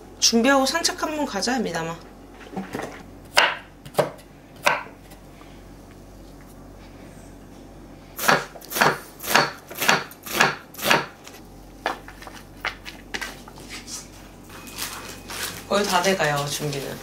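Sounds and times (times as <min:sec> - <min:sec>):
knife chopping on cutting board: 0:03.3 - 0:05.1, 0:08.2 - 0:11.2.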